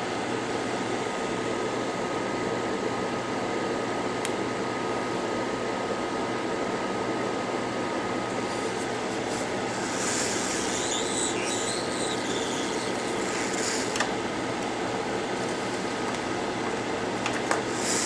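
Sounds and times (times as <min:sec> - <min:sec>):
hot-air station fan blowing: 0:00.0 - 0:18.0
fabric rubbing on microphone: 0:08.4 - 0:14.1.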